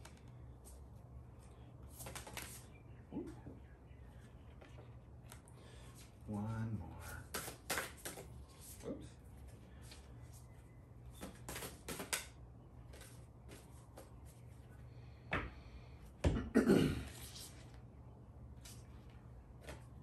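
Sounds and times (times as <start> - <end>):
low room hum: 0.0 - 20.0
cards being shuffled: 1.8 - 2.7, 7.0 - 8.8, 11.1 - 14.4.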